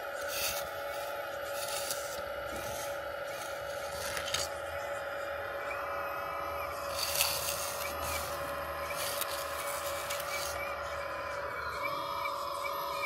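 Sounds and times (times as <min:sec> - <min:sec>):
hydraulic pump whine: 0:00.0 - 0:13.0
metal bucket scraping soil: 0:01.5 - 0:04.5, 0:06.9 - 0:10.6.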